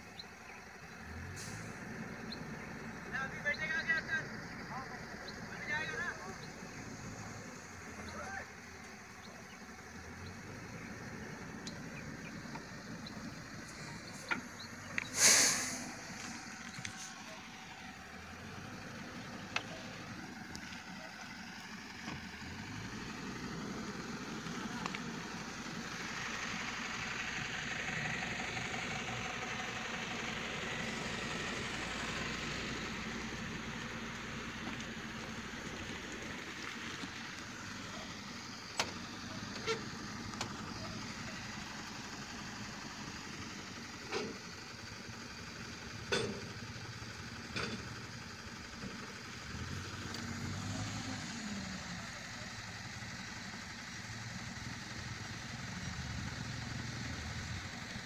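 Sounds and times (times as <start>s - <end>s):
heavy diesel engines running: 0.0s - 58.0s
loud air hiss: 15.0s - 17.2s.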